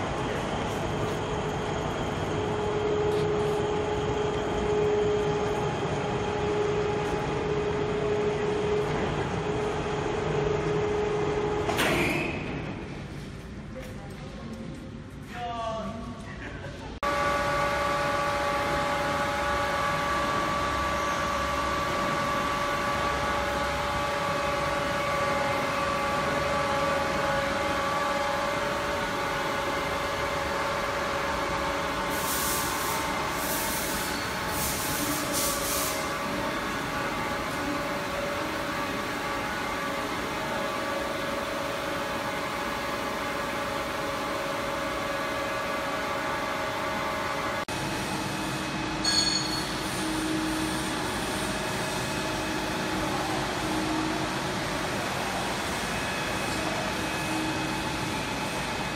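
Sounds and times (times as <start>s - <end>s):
steady machine whine: 0.0s - 13.3s, 17.0s - 58.9s
workshop machinery humming: 0.0s - 58.9s.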